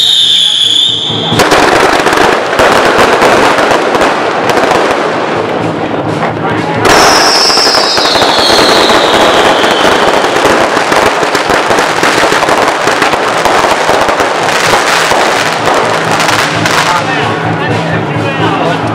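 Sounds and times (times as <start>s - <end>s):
falling firework whistle: 0.0s - 2.0s, 6.9s - 10.7s
fireworks crackling and popping: 0.0s - 18.9s.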